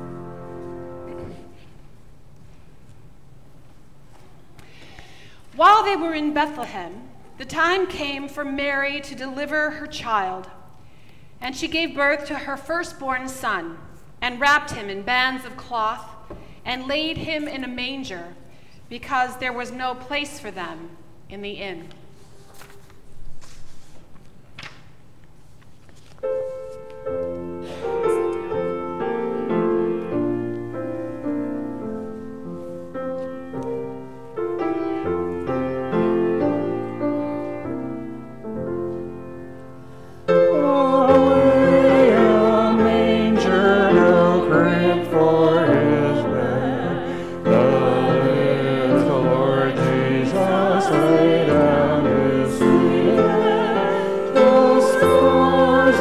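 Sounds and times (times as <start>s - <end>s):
grand piano playing: 0.0s - 1.6s, 26.2s - 56.0s
person singing: 40.4s - 56.0s.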